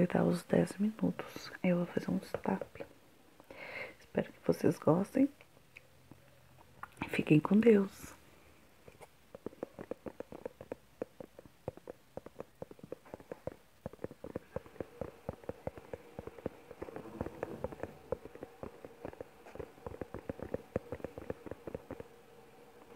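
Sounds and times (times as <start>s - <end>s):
fingertips tapping on microphone: 9.0s - 22.9s.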